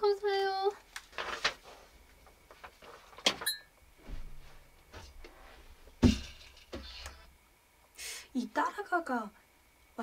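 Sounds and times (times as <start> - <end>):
loud thump: 6.0 - 6.8.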